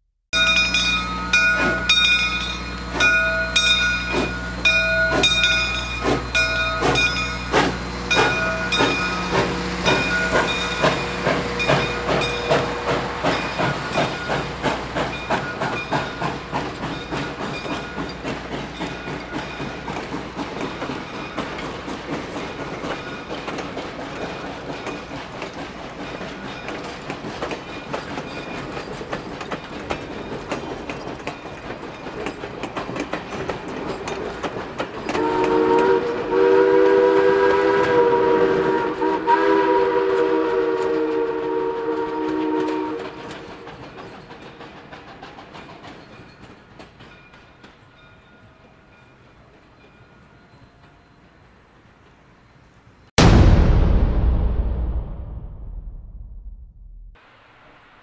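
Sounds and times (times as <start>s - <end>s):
wheels clicking over rail joints: 0.4s - 38.6s, 41.9s - 51.0s
steam locomotive exhaust beating: 0.4s - 47.4s
steam whistle blasts: 35.1s - 43.4s.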